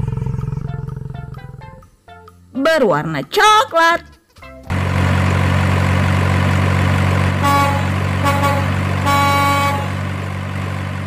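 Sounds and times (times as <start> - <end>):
truck engine humming: 0.0 - 11.0
truck horn toots: 7.3 - 10.2.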